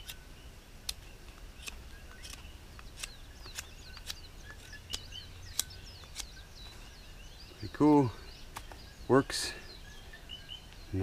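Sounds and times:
birds chirping faintly: 0.0 - 11.0
pocketknife scraping a stick: 1.6 - 6.4.

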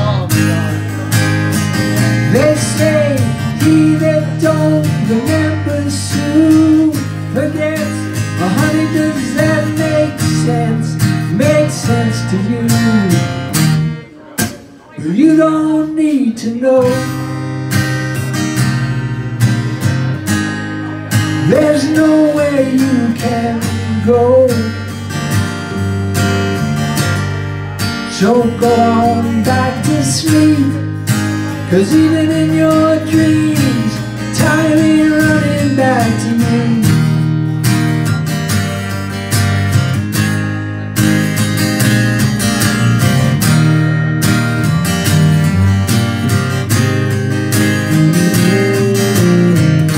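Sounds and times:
electric bass: 0.0 - 14.0, 17.0 - 49.9
man singing: 0.0 - 17.4, 20.8 - 25.1, 27.6 - 37.4, 47.8 - 49.9
acoustic guitar strumming: 0.0 - 49.9.

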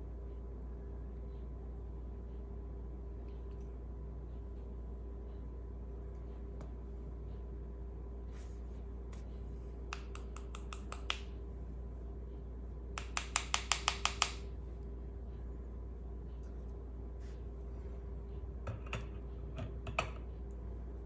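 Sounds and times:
steady low hum: 0.0 - 21.0
wire hanger tapping against jar: 13.0 - 14.4.

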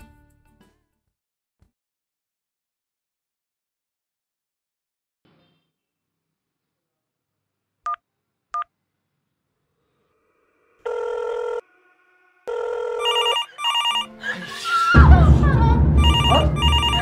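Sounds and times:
phone ringing in two tones: 12.5 - 14.2, 16.0 - 17.0
fast trilling ring: 13.0 - 14.1, 16.0 - 17.0
telephone keypad beeps: 13.0 - 14.1.

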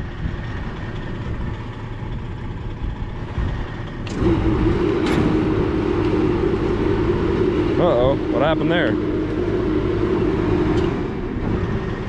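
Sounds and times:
low rumble: 0.0 - 12.0
electric motor humming: 4.0 - 12.0.

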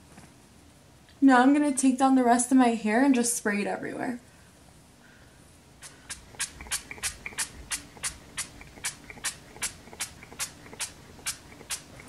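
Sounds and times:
short hissing spray bursts: 5.8 - 12.0.

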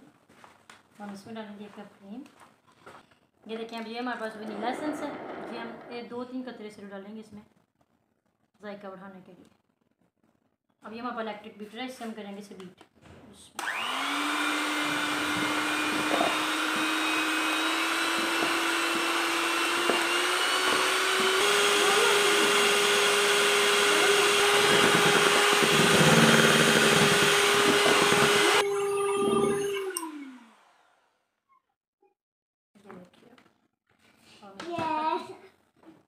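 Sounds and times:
electric hand mixer whine: 13.6 - 31.2.

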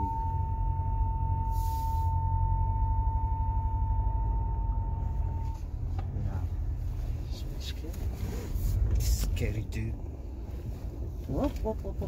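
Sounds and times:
electronic warning tone: 0.0 - 5.6
vehicle engine low rumble: 0.0 - 12.0
short hiss: 1.5 - 2.1.

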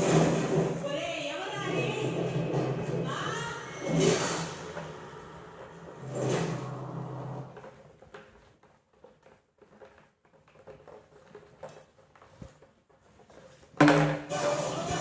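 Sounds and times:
voice: 0.8 - 4.0
loud music: 14.2 - 15.0.

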